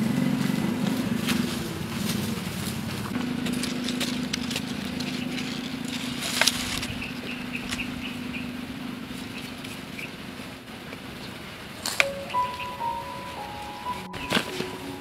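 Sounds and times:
low hum: 0.0 - 9.6
roots and soil crackling: 0.0 - 10.6.

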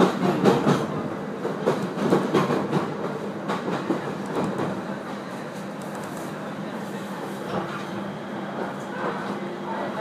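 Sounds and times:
train wheels clacking on track: 0.0 - 4.9.

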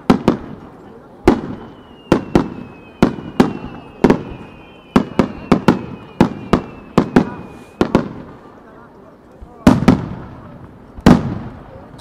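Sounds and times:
faint high whistling: 1.4 - 7.9.

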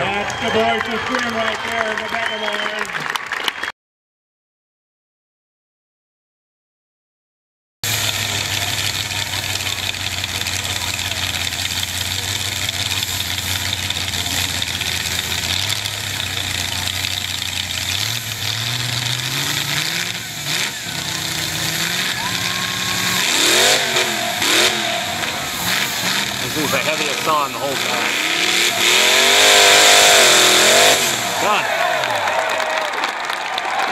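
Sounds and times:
racing chainsaw engine revving: 7.8 - 32.7.

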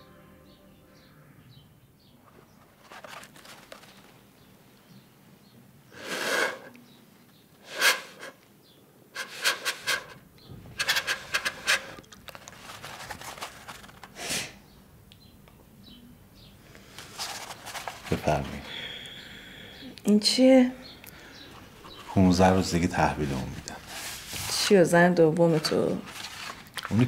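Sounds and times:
breath blown through paper tube: 6.0 - 6.7, 7.6 - 8.4.

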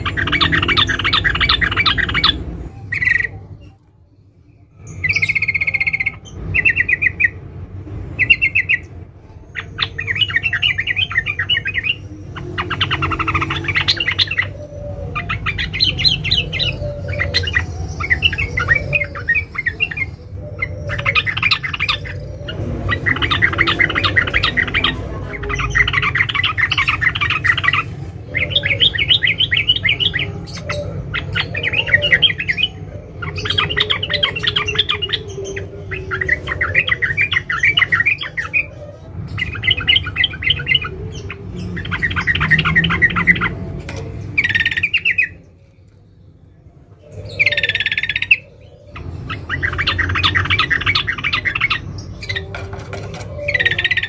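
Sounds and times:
bird chattering calls: 0.0 - 3.6, 8.2 - 45.6, 47.0 - 54.0.

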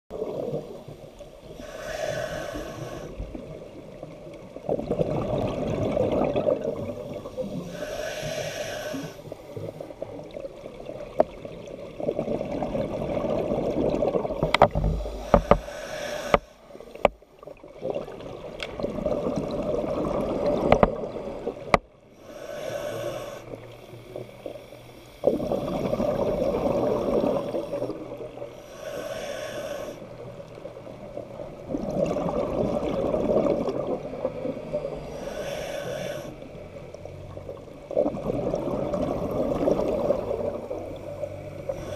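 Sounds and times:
exhaled bubbles rumbling: 0.1 - 21.8, 25.2 - 28.5, 30.8 - 35.1, 37.2 - 41.9
diver breathing through regulator: 1.4 - 3.3, 7.2 - 9.8, 14.4 - 17.1, 22.2 - 30.2, 35.0 - 36.7, 41.3 - 41.9.

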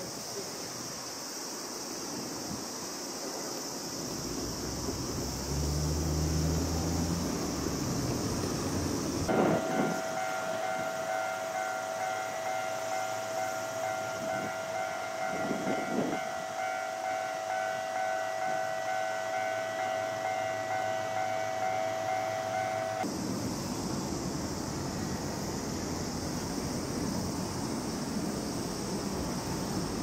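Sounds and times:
tram high hum: 1.8 - 30.0.

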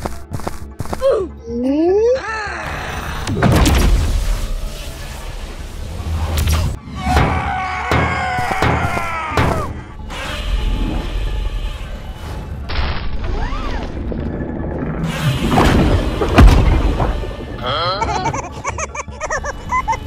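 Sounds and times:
cartoon battle music: 6.9 - 10.6.

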